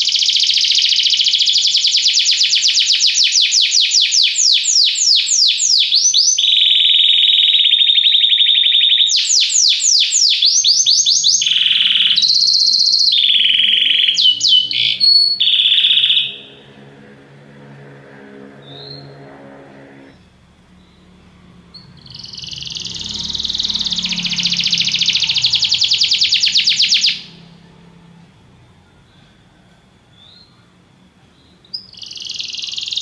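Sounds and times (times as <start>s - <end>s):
canary singing trills: 0.0s - 27.6s, 31.4s - 33.0s.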